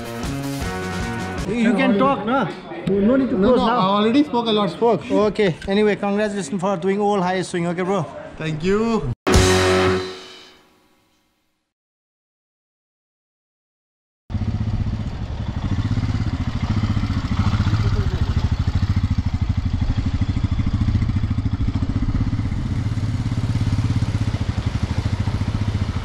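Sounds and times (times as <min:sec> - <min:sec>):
motorcycle engine running: 0:14.3 - 0:26.0.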